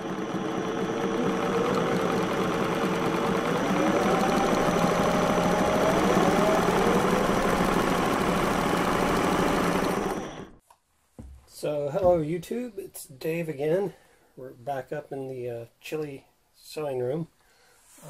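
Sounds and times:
engine running: 0.0 - 10.6.

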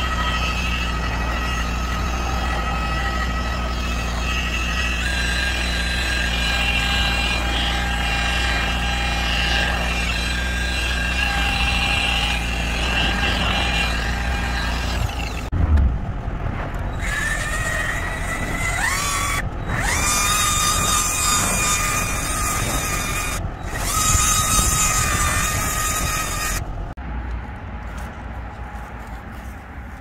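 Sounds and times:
rotary polisher motor whine: 0.0 - 15.4.

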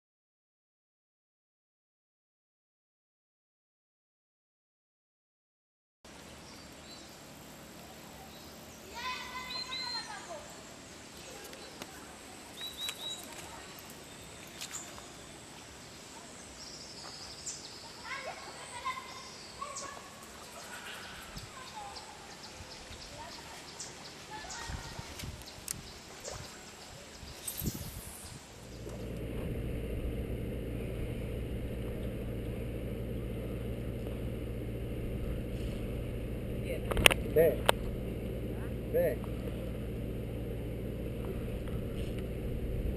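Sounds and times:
background hiss: 6.1 - 42.9
birds chirping and trilling: 6.4 - 11.8, 12.4 - 42.2
outboard motor idling: 28.5 - 42.9.

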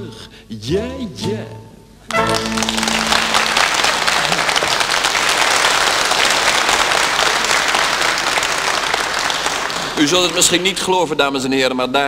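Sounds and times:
audience applauding: 2.1 - 11.1.

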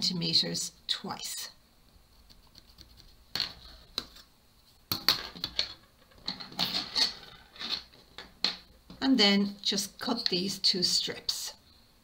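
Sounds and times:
scraping and rustling: 2.6 - 8.6.

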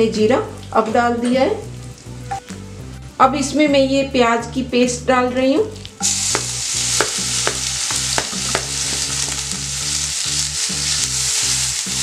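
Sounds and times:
onion sizzling in frying pan: 5.8 - 12.0
wooden spatula knocking on pan: 6.3 - 9.0.

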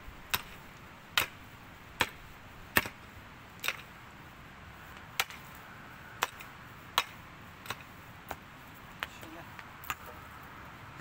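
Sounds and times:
pickaxe striking stony soil: 0.3 - 1.4, 2.0 - 3.0, 3.6 - 3.9, 5.2 - 5.6, 6.2 - 8.4.

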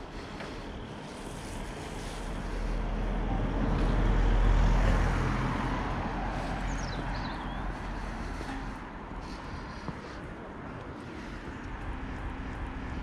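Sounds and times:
vehicle driving past: 1.4 - 9.9.

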